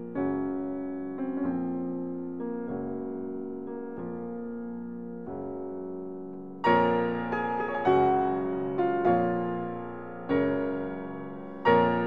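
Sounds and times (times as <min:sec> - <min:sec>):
sustained piano chords: 0:00.0 - 0:12.0.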